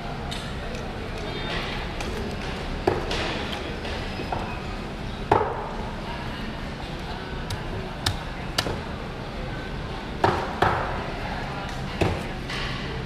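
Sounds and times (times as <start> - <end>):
busy market hall voices: 0.0 - 13.0.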